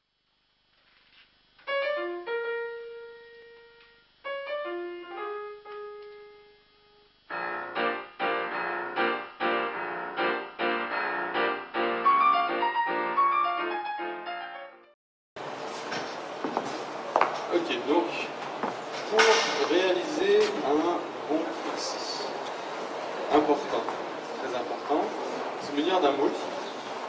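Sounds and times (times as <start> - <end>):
piano chords: 1.6 - 15.0.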